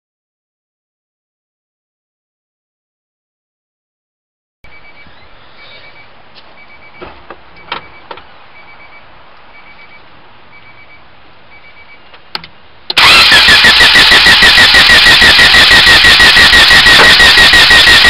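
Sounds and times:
car warning chime beeping: 4.7s - 5.1s, 5.8s - 7.0s, 7.6s - 12.0s.

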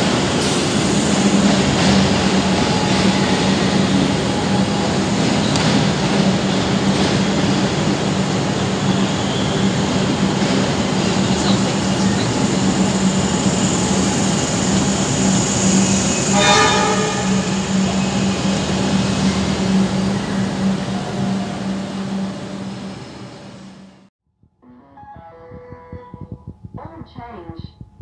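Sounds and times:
electric train humming and rolling: 0.0s - 24.1s
train horn blast: 16.2s - 18.4s.

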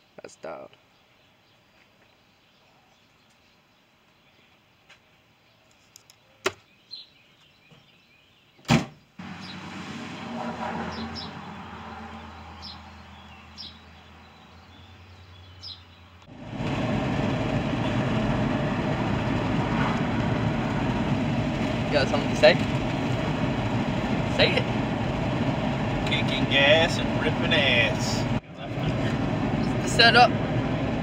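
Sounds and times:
loud thump: 8.6s - 9.0s
road noise inside car cabin: 9.2s - 31.0s
vehicle engine running: 9.2s - 31.0s.

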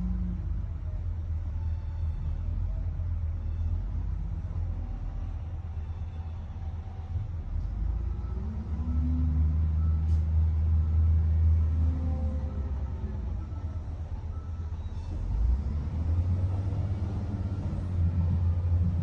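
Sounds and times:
diesel engines rumbling: 0.0s - 19.0s
wheel loader engine under load: 0.0s - 19.0s.

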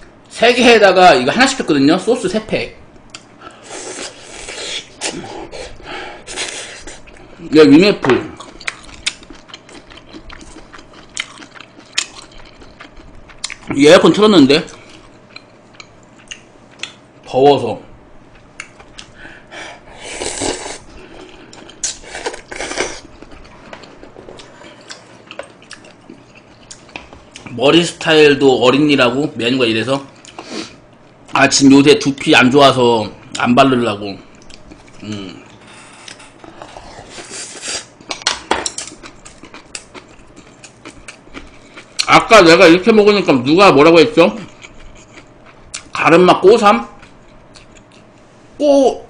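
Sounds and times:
slurping food: 3.6s - 5.7s
person chewing food: 8.3s - 13.7s, 14.6s - 17.0s, 18.2s - 27.5s, 34.3s - 42.1s, 44.4s - 46.0s, 46.9s - 48.4s.

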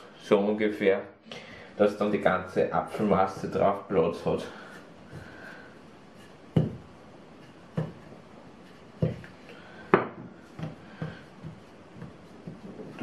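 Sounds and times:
rolling pin knocking on table: 6.5s - 6.9s, 7.7s - 8.1s.

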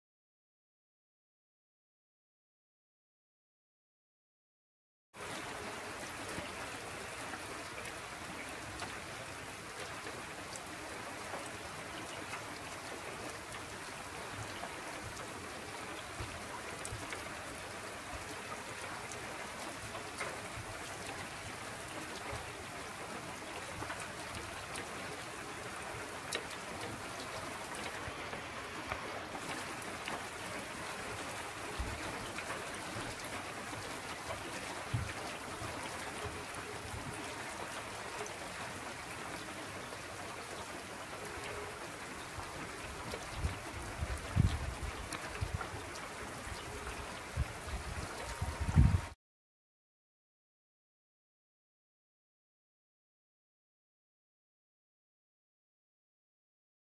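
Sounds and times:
rain falling on water: 5.2s - 49.2s.

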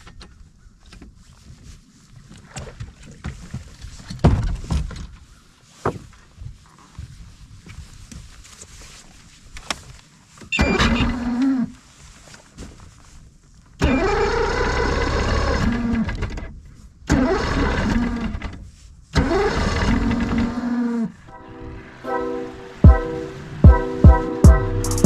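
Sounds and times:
outboard motor being cranked: 10.6s - 11.7s, 13.8s - 16.5s, 17.1s - 21.1s.

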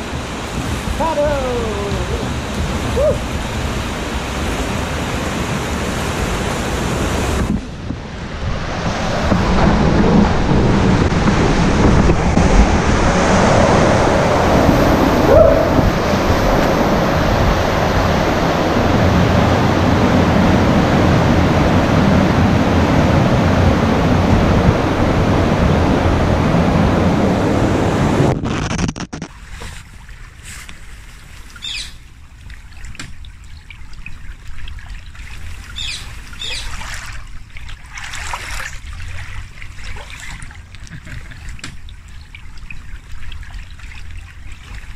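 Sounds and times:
white water rushing: 0.0s - 28.3s, 35.1s - 41.4s
small water splashes: 29.2s - 44.9s
river water trickling: 29.3s - 44.9s.

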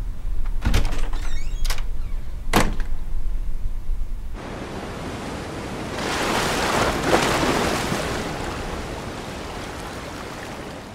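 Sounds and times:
ocean surf washing on beach: 4.4s - 10.9s.

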